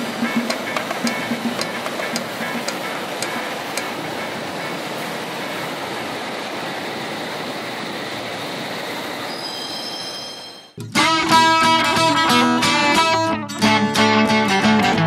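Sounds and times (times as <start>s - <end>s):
train rushing rumble: 0.0s - 10.7s
high-pitched train squeal: 9.1s - 10.8s.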